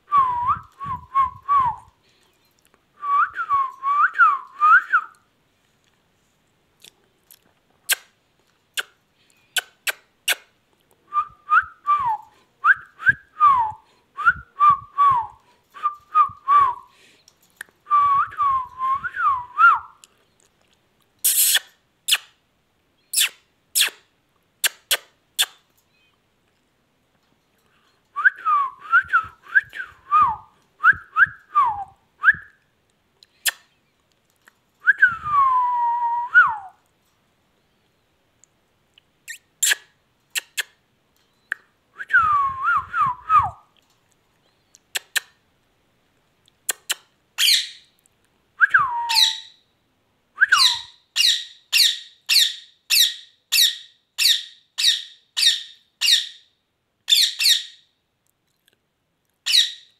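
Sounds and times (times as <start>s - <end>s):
whistling gliding notes: 48.6s - 49.6s.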